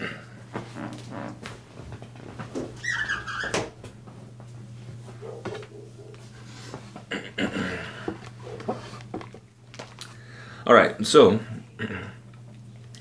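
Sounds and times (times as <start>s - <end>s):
window squeaking: 2.6s - 3.8s.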